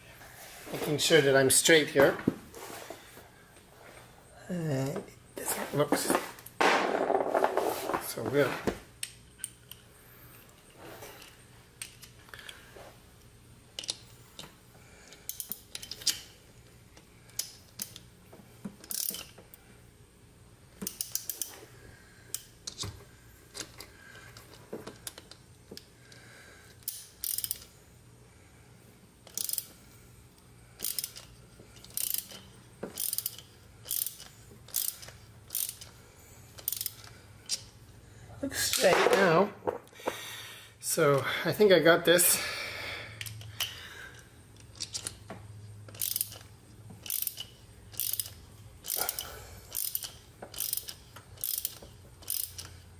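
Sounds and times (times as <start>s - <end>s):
hand ratchet clicking: 13.8s - 16.3s, 18.8s - 19.4s, 20.8s - 21.6s, 26.7s - 27.7s, 29.2s - 37.7s, 43.2s - 45.3s, 45.9s - 52.9s.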